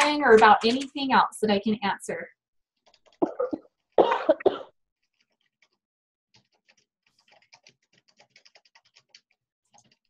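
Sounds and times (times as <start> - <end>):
faint keyboard typing: 0.0 - 1.2, 2.8 - 4.0, 5.0 - 10.0.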